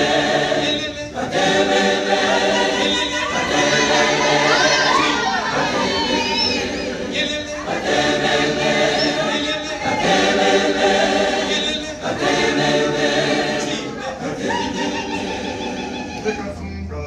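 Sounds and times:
choir singing: 0:00.0 - 0:17.0.

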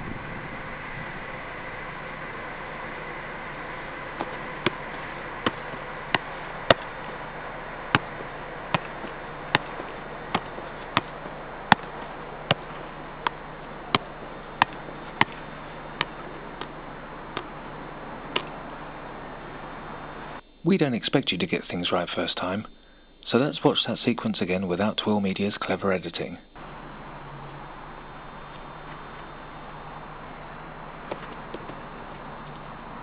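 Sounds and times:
steady hiss: 0:00.0 - 0:33.0
ball tapping against body: 0:04.2 - 0:07.2, 0:07.9 - 0:17.5.

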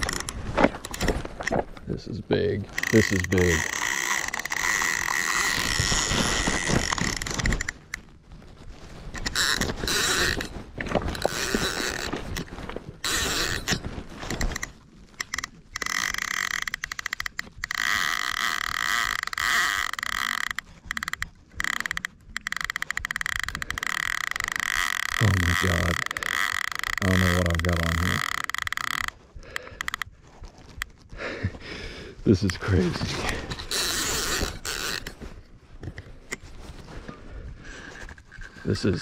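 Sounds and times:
fishing reel whirring: 0:00.0 - 0:00.4, 0:02.7 - 0:07.9, 0:09.1 - 0:10.5, 0:11.1 - 0:30.1, 0:33.6 - 0:35.2
fast clicking of reel: 0:00.0 - 0:01.0, 0:02.7 - 0:07.9, 0:09.2 - 0:10.5, 0:11.1 - 0:30.1, 0:33.6 - 0:35.2.

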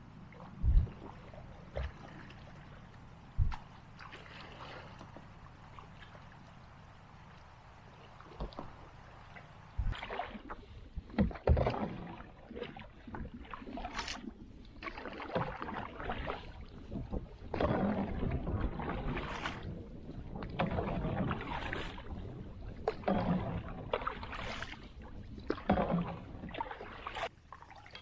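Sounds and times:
paddle splashing water: 0:00.0 - 0:28.0
water lapping on hull: 0:00.0 - 0:28.0.

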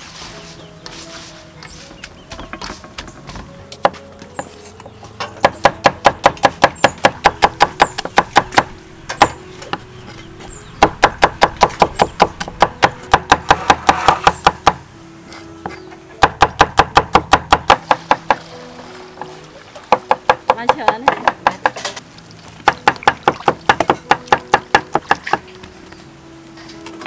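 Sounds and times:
cleaver chopping on wooden board: 0:05.3 - 0:09.8, 0:10.8 - 0:14.8, 0:16.2 - 0:18.4, 0:19.9 - 0:22.0, 0:22.6 - 0:25.4.

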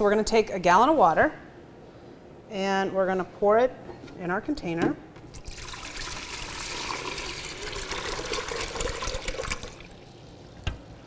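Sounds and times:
water pouring and splashing: 0:05.4 - 0:10.4.

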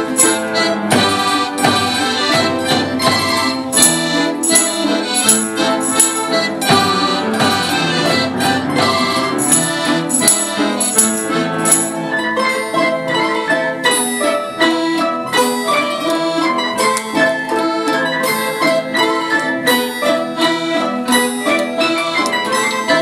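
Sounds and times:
jingling percussion: 0:00.0 - 0:01.7, 0:03.4 - 0:07.0, 0:09.3 - 0:12.2
orchestra playing rhythmic piece: 0:00.0 - 0:23.0.

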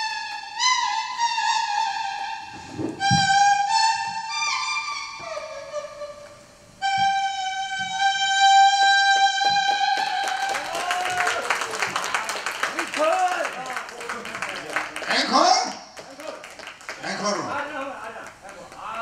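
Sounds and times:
leaf whistle melody: 0:00.0 - 0:12.4
audience applause: 0:09.7 - 0:19.0.

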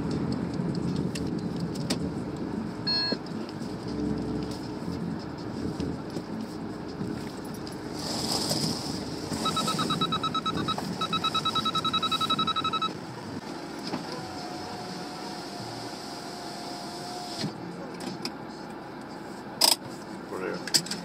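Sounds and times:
van moving slowly: 0:00.0 - 0:21.0
rapid electronic beeping: 0:09.4 - 0:13.0.

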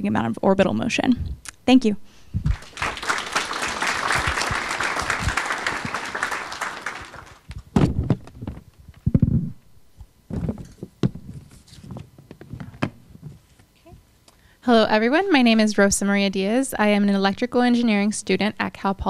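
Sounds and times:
audience applauding: 0:02.5 - 0:07.6
knocks and thumps: 0:10.3 - 0:13.4.

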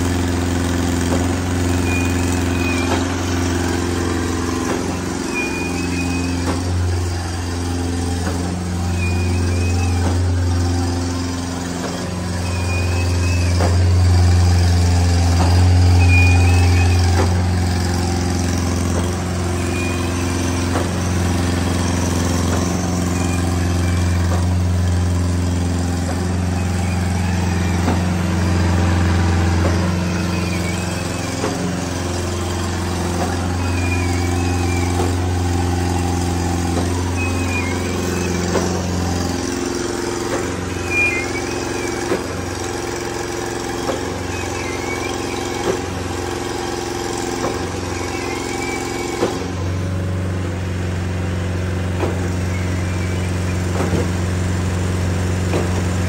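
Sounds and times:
diesel engine humming: 0:00.0 - 0:56.0
faint short chirp: 0:37.0 - 0:49.5.

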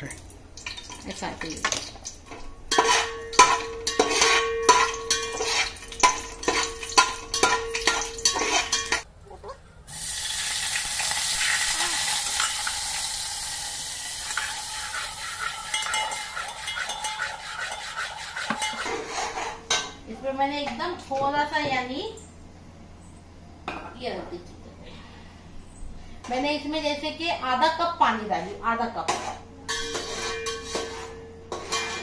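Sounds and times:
water poured into hot oil: 0:00.0 - 0:01.1, 0:09.9 - 0:17.6
loud steady sizzle: 0:00.0 - 0:09.1, 0:09.8 - 0:17.6
spices frying in oil: 0:00.0 - 0:09.1, 0:09.9 - 0:18.9
spoon knocking and scraping a pot: 0:01.6 - 0:09.1, 0:14.2 - 0:20.0, 0:29.0 - 0:32.0.

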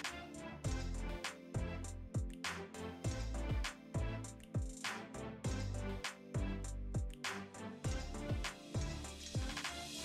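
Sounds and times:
background music with steady beat: 0:00.0 - 0:10.0
deep kick drum: 0:03.1 - 0:04.7, 0:07.9 - 0:09.0.

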